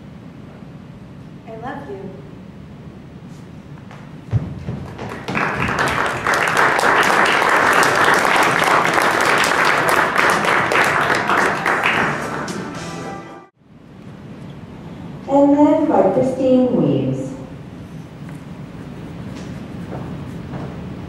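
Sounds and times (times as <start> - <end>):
audience applauding: 4.7 - 13.4.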